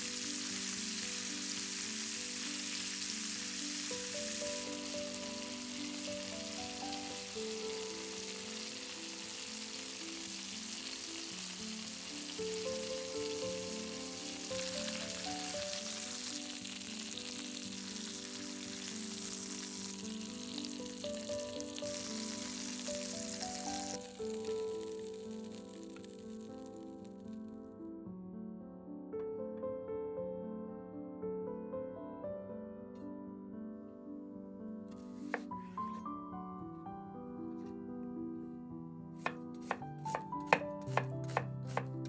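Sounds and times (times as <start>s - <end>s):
chicken sizzling in a skillet: 0.0s - 27.3s, 39.2s - 41.9s
gentle background music: 0.0s - 42.0s.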